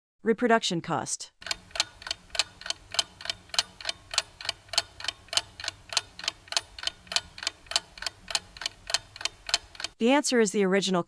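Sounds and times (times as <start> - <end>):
clock ticking: 1.4 - 10.0.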